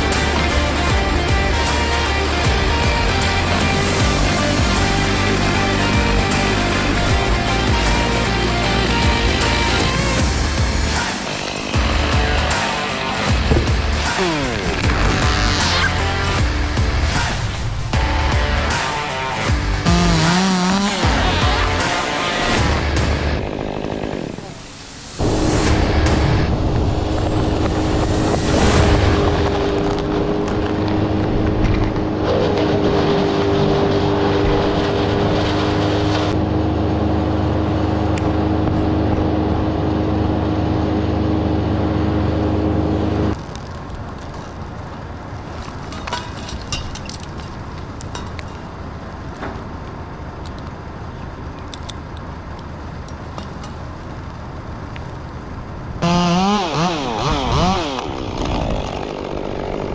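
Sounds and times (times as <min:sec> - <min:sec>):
chainsaw revving: 0:00.0 - 0:16.4, 0:18.0 - 0:24.7, 0:56.0 - 0:59.9
engine drone: 0:00.0 - 0:59.9.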